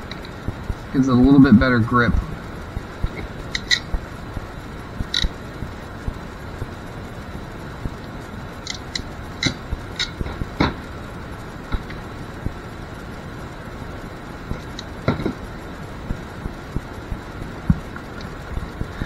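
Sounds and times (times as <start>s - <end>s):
crimping tool metallic clicks: 5.1s - 5.3s.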